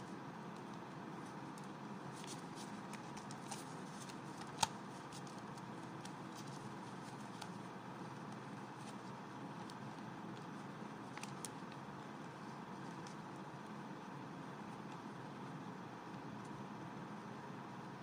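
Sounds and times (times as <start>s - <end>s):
banknotes rustling: 1.2s - 13.4s.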